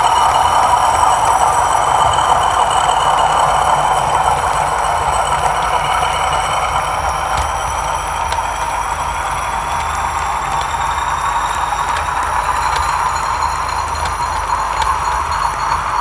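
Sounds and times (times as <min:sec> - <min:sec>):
model train wheels rolling on track: 0:00.0 - 0:16.0
faint track clicks: 0:05.4 - 0:16.0.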